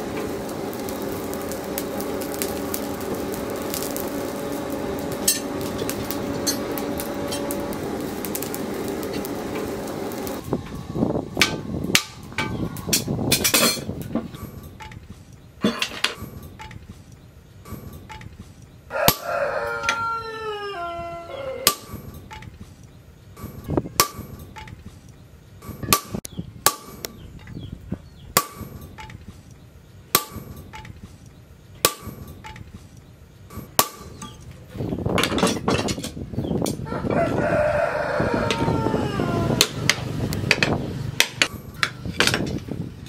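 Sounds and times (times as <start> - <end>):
sharp metallic knocks: 17.6 - 18.4, 21.6 - 22.6, 23.4 - 24.9, 25.6 - 27.6, 28.4 - 29.3, 30.1 - 31.0, 31.8 - 32.7, 33.5 - 34.5, 39.6 - 42.6
rooster crowing: 18.9 - 21.9, 36.8 - 39.9.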